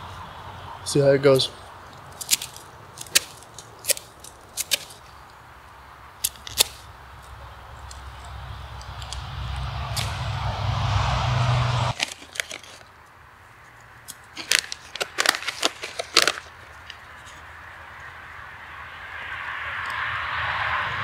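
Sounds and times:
pouch crinkling: 11.9 - 12.9, 14.1 - 17.4.

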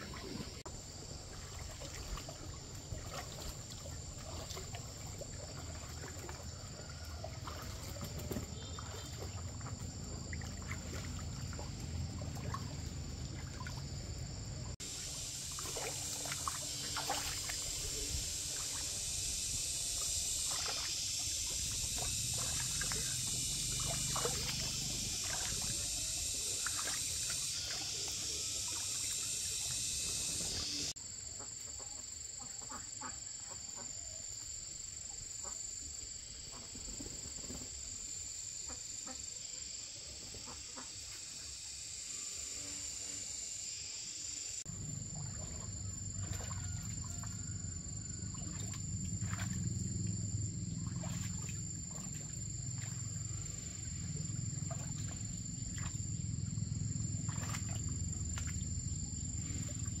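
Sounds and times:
insects droning: 0.0 - 60.0.

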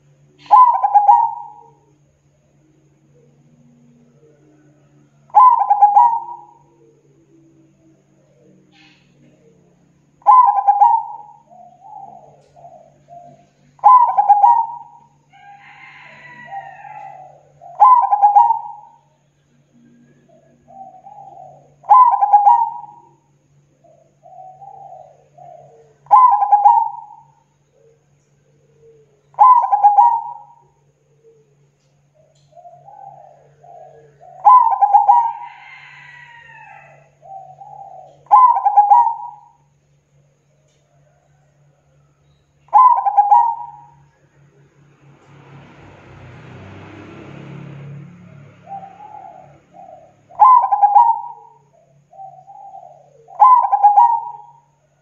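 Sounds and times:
dove cooing: 0.0 - 44.9, 47.9 - 55.0.

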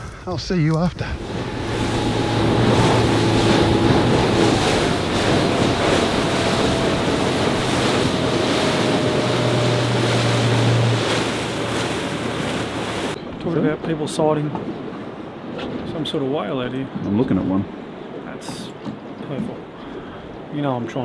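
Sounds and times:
water rushing past hull: 0.9 - 16.2
wind buffeting microphone: 0.9 - 20.8
boat motor humming: 1.0 - 13.4.

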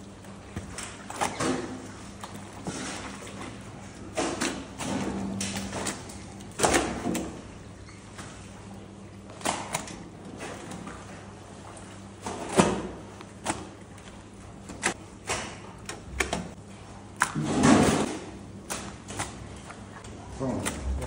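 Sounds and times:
wet slaps of raw meat: 12.5 - 13.7, 17.2 - 17.4, 18.0 - 19.7.

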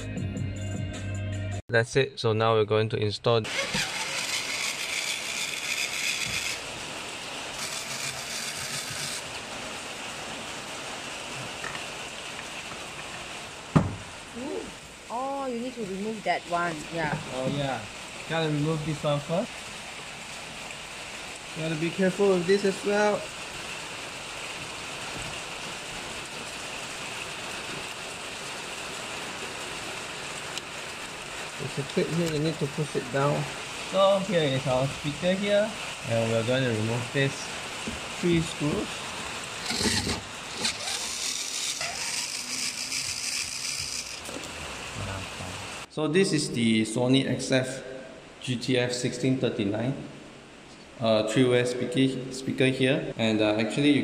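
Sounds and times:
rain falling: 3.5 - 45.9.

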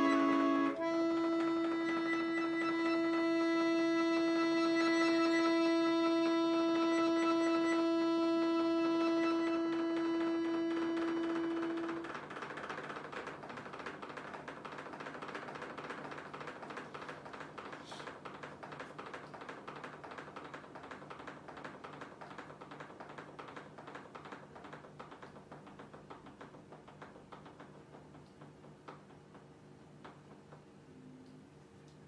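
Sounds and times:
fingers tapping on accordion: 0.0 - 23.5.

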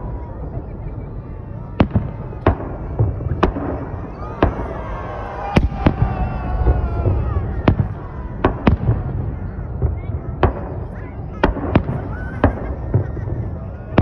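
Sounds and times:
fireworks bangs: 0.0 - 14.0.

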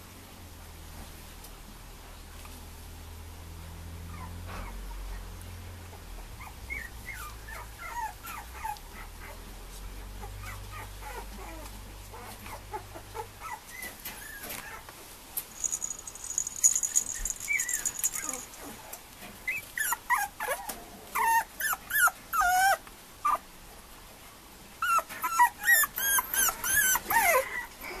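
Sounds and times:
puppy whimpering and yipping: 4.1 - 5.3, 6.4 - 9.4, 10.2 - 14.8, 15.6 - 18.8, 19.4 - 23.4, 24.8 - 28.0.

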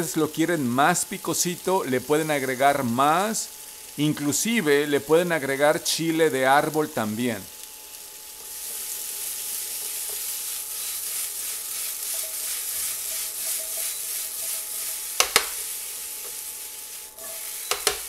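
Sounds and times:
vegetables sizzling in a pan: 0.0 - 18.0
metal utensil stirring in a pan: 8.6 - 18.0.

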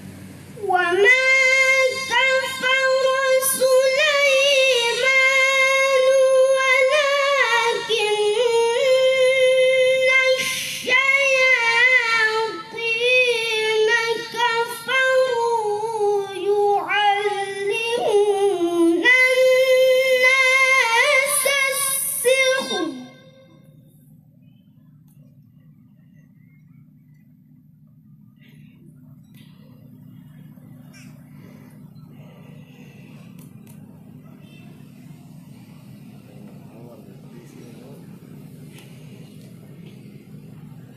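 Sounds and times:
boy reciting melodically: 0.6 - 23.6.

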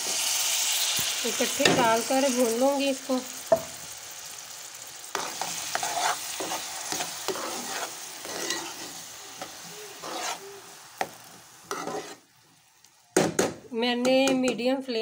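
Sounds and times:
food sizzling in hot oil: 0.0 - 13.4
metal spoon scraping a pan: 5.1 - 12.3.

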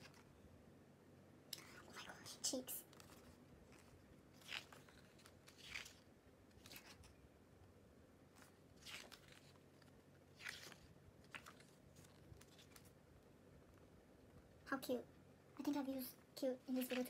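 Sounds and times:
paper pages turning: 0.0 - 0.3, 2.8 - 7.2, 8.3 - 13.0, 16.7 - 17.0.

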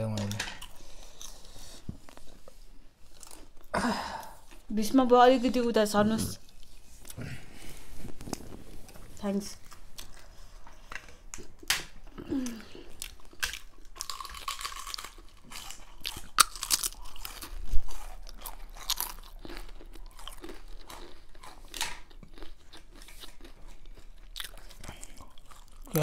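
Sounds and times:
crunchy chewing: 12.4 - 26.0.

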